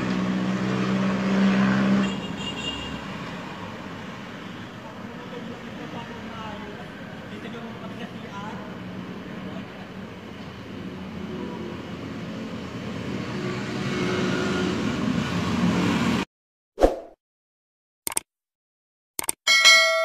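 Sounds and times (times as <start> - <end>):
vehicle engine and road noise: 0.0 - 16.3
short swish: 16.8 - 17.2
sharp click: 18.1 - 18.3, 19.2 - 19.4.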